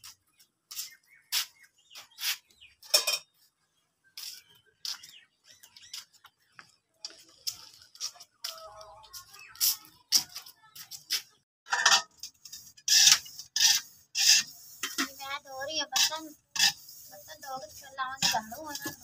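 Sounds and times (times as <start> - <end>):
birds chirping: 0.0 - 11.4
metal pots clinking: 2.8 - 3.4, 11.7 - 15.2
footsteps: 4.1 - 11.4.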